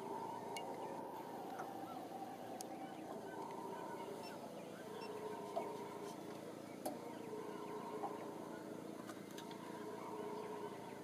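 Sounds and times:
howler monkeys roaring: 0.0s - 11.0s.

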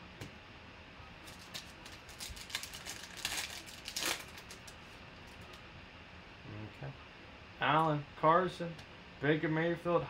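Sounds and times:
foil wrapper crinkling and tearing: 1.2s - 4.9s.

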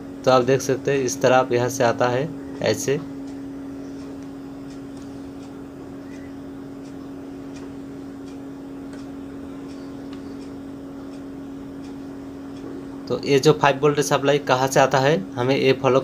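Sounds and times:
low hum: 0.0s - 16.0s
faint light ticks: 4.0s - 9.1s.

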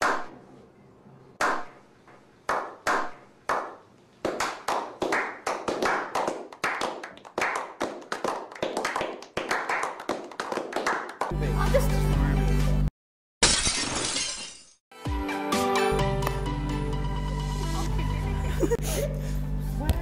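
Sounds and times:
hand claps and applause: 0.0s - 0.3s, 1.4s - 1.8s, 2.5s - 11.4s, 16.2s - 16.4s.

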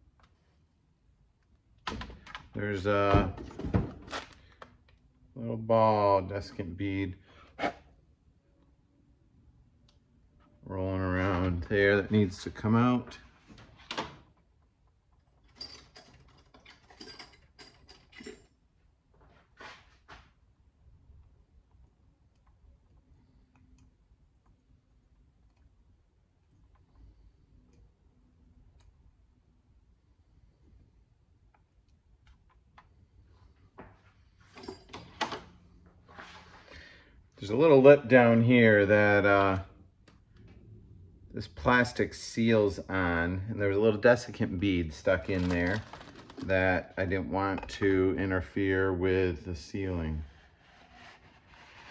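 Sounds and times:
handling knocks and rustles: 45.0s - 46.6s.

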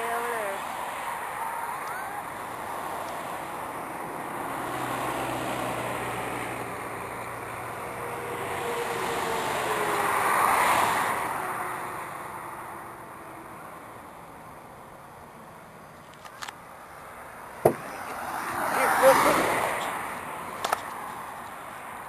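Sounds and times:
vehicle passing by: 0.0s - 12.2s, 17.6s - 20.5s.

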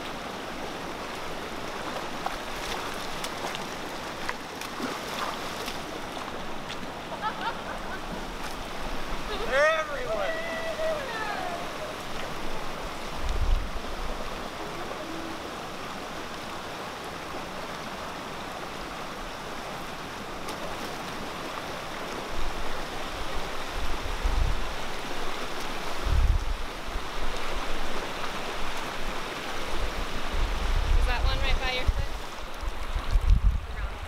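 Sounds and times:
floodwater rushing over gravel: 0.0s - 34.0s.

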